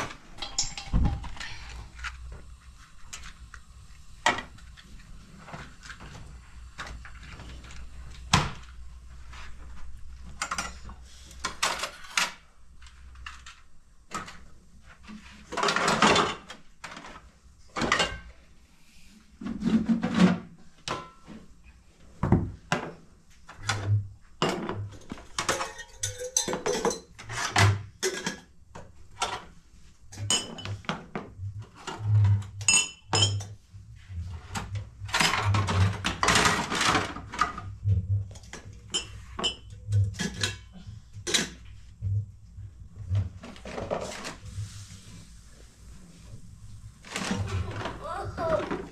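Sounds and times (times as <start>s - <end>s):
metal pots and pans clattering: 0.0s - 1.6s, 15.5s - 17.2s, 17.8s - 18.3s, 19.5s - 21.4s, 23.7s - 28.5s, 30.1s - 33.6s, 34.6s - 37.7s, 38.3s - 41.7s.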